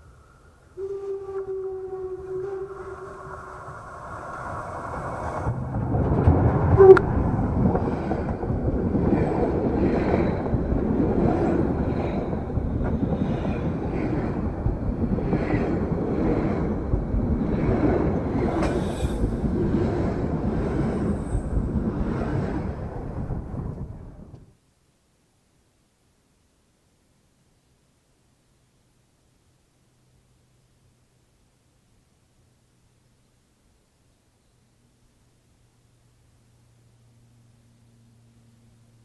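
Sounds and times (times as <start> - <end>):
steam whistle: 0.8 - 3.8, 6.8 - 7.1
train wheels clattering on rails: 3.7 - 24.5.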